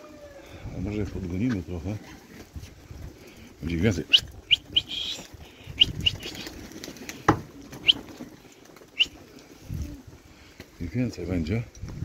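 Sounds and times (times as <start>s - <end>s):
pigeon wings flapping: 2.2s - 10.7s.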